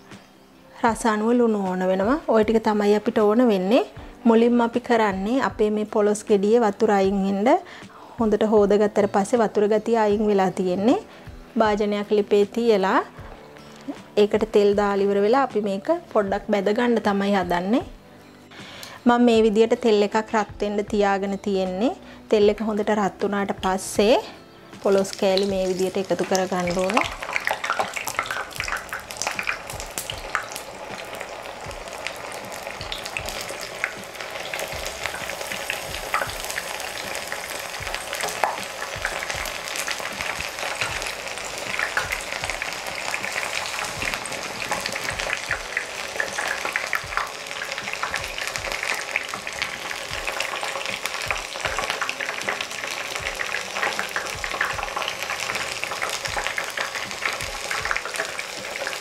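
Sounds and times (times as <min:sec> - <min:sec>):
food deep-frying in hot oil: 0:24.8 - 0:59.0.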